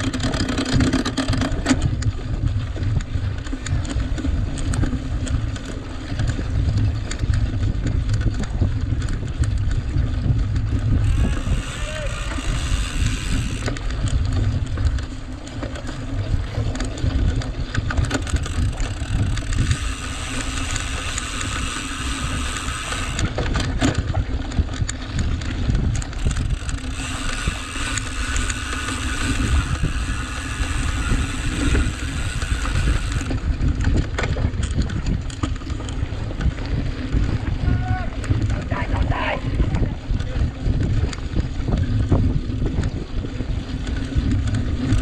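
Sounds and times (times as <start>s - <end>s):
sharp clicks and knocks: 0.0s - 11.5s, 12.4s - 36.6s
chain and frame rattling: 0.0s - 36.4s
bike tyre noise: 0.0s - 45.0s
wind rumbling on microphone: 0.0s - 45.0s.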